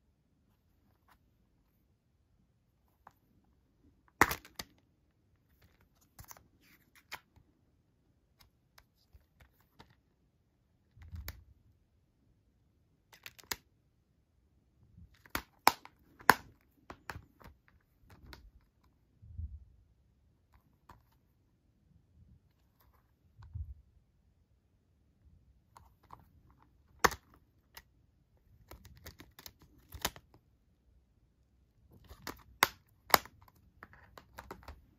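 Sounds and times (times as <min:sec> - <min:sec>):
plastic case clicks and snaps: 0:04.1 - 0:04.8, 0:13.1 - 0:13.6, 0:15.1 - 0:18.5, 0:26.9 - 0:27.9, 0:28.6 - 0:30.3, 0:32.0 - 0:34.8.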